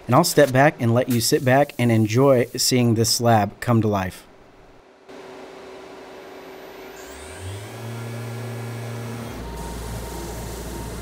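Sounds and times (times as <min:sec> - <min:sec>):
router spindle whine: 0:05.9 - 0:11.0.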